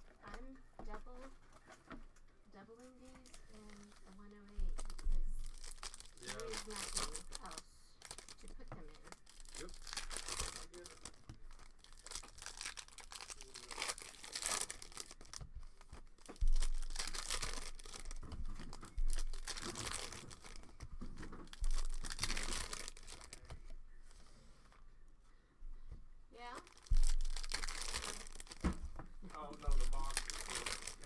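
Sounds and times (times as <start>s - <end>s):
foil wrapper crinkling and tearing: 2.7s - 23.6s, 26.4s - 31.0s
cards shuffled in hands: 8.2s - 23.7s, 26.8s - 31.0s
dull thumps: 26.7s - 31.0s.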